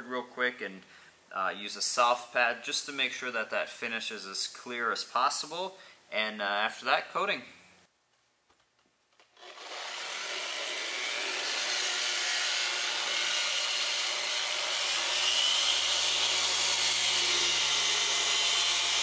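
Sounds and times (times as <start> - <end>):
polisher whirring: 9.4 - 19.0.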